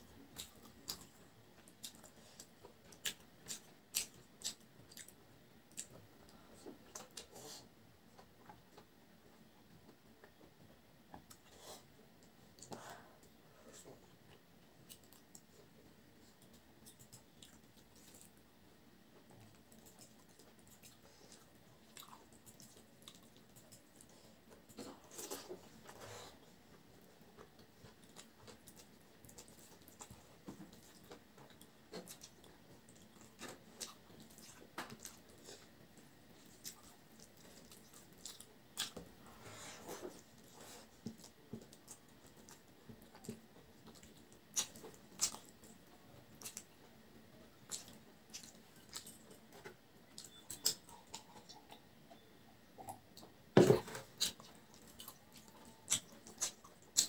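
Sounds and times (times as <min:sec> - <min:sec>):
chewing mouth sounds: 0:00.3 - 0:05.9, 0:39.9 - 0:45.8, 0:46.4 - 0:46.7, 0:47.6 - 0:49.5, 0:50.1 - 0:51.8, 0:54.1 - 0:57.0
chewing and mouth sounds: 0:00.3 - 0:07.5, 0:12.6 - 0:18.4, 0:19.2 - 0:39.1, 0:39.7 - 0:46.9, 0:47.6 - 0:52.2, 0:52.8 - 0:57.0.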